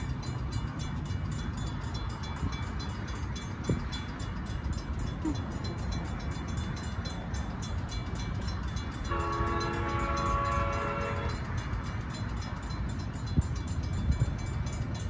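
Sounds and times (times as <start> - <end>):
train horn: 9.0 - 11.6.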